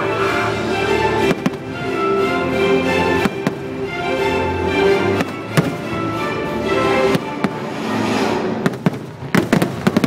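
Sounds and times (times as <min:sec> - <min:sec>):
music: 0:00.0 - 0:10.0
fireworks bursting with sharp bangs: 0:01.2 - 0:01.8, 0:03.2 - 0:03.8, 0:05.1 - 0:06.2, 0:06.9 - 0:10.0.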